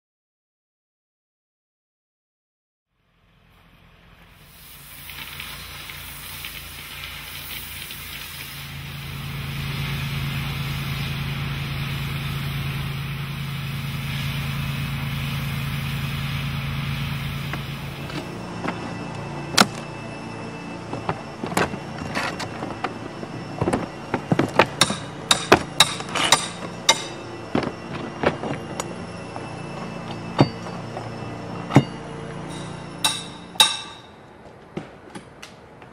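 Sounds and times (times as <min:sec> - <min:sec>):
pressure washer spraying: 0:04.4 - 0:18.2.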